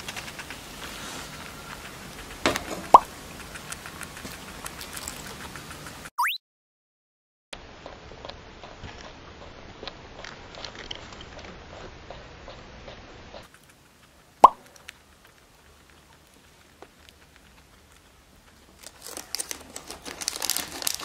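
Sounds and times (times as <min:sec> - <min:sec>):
guinea pig teeth crunching: 0:00.0 - 0:06.1, 0:07.8 - 0:21.0
rising plop sound effect: 0:06.2 - 0:06.4.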